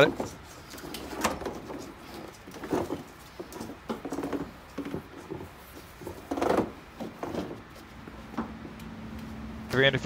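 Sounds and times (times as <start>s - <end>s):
plastic scraping and creaking: 0.0s - 7.9s.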